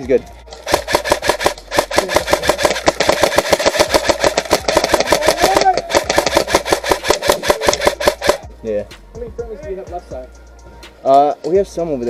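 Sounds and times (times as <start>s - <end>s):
airsoft rifle firing full auto: 0.6s - 8.4s
gun motor whine: 0.6s - 8.4s.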